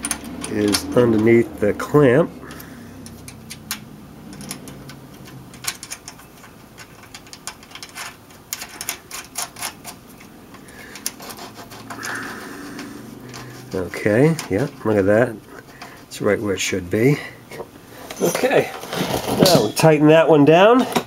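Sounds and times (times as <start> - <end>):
metallic clicks of bolt and nut: 0.0 - 1.4, 2.5 - 14.9.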